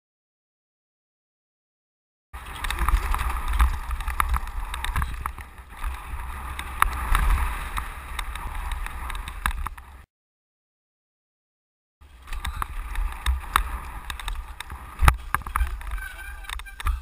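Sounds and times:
bike clicks and clatters: 0:02.4 - 0:10.0, 0:12.0 - 0:17.0
mountain bike rattling on rocky trail: 0:02.4 - 0:10.0, 0:12.0 - 0:17.0
wind buffeting microphone: 0:02.4 - 0:10.0, 0:12.0 - 0:17.0.

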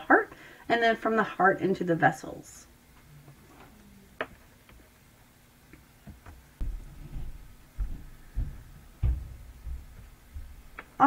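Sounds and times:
dull low thumps: 0:06.6 - 0:10.8.

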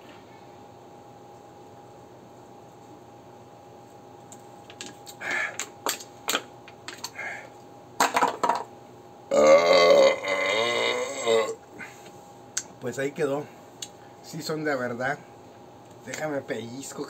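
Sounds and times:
breaths: 0:05.2 - 0:05.7, 0:07.1 - 0:07.6, 0:11.8 - 0:12.2
man belching: 0:09.3 - 0:11.6.

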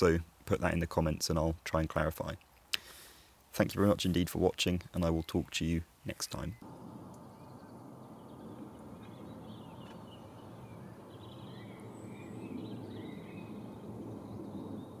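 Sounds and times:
faint bird chirps: 0:06.1 - 0:15.0
low background rumble: 0:06.6 - 0:15.0.

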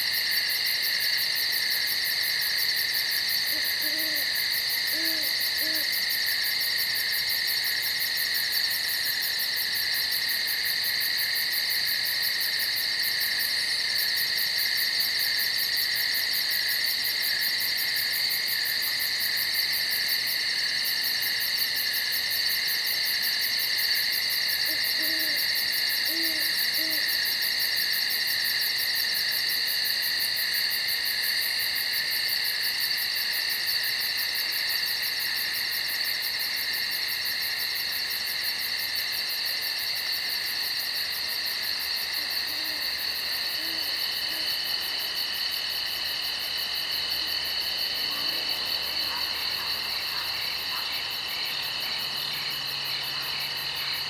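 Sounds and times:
chorus of insects: 0:00.0 - 0:54.0
faint low owl hoots: 0:03.4 - 0:06.0, 0:24.6 - 0:27.2, 0:42.2 - 0:44.9.

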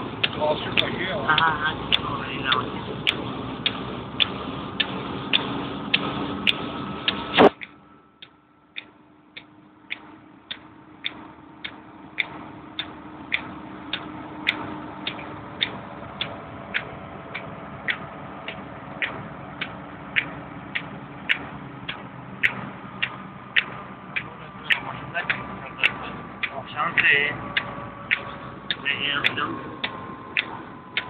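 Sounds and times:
background rumble: 0:00.0 - 0:31.0
regular clicking in car cabin: 0:00.0 - 0:31.0
loud thump: 0:07.3 - 0:07.6.

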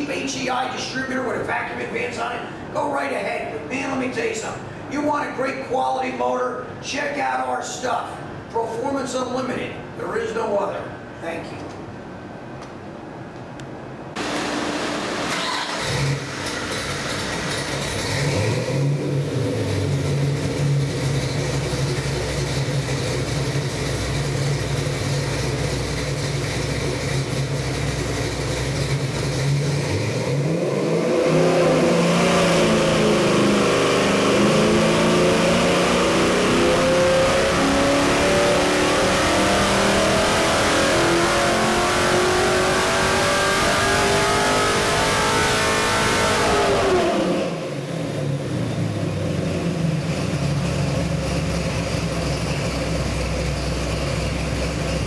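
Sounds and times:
engine revving under load: 0:14.1 - 0:55.0.

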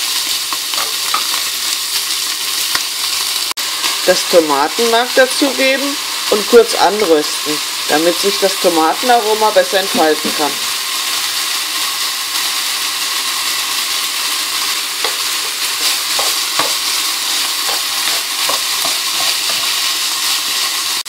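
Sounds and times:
food sizzling in frying pan: 0:00.0 - 0:21.0
spatula scraping pan: 0:00.5 - 0:01.5, 0:14.6 - 0:20.7.

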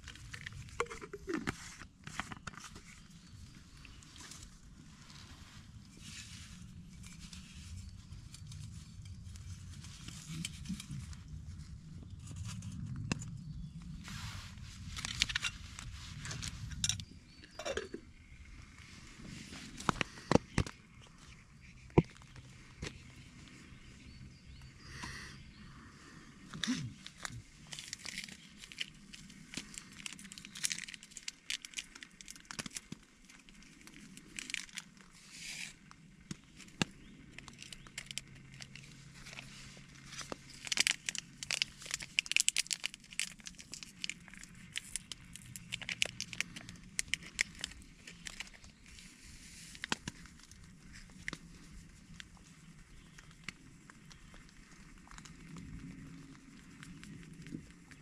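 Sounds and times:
foil sachet crinkling and tearing: 0:26.6 - 0:35.9, 0:36.5 - 0:49.1.

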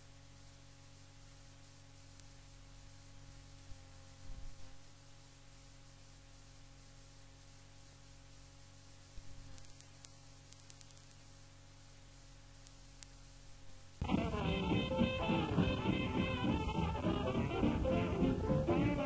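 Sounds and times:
cassette tape hiss: 0:00.0 - 0:19.0
mains hum: 0:00.0 - 0:19.0
faint clicks: 0:02.1 - 0:02.4, 0:09.4 - 0:11.3, 0:12.6 - 0:13.2
swing big band with brass: 0:14.0 - 0:19.0.

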